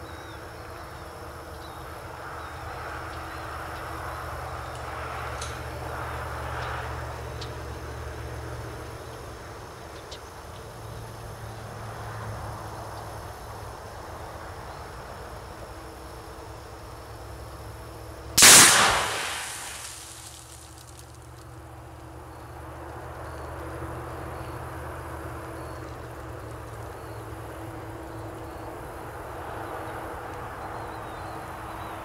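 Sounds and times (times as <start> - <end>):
outdoor background noise: 0.0 - 32.0
loud gunshot burst: 18.4 - 21.0.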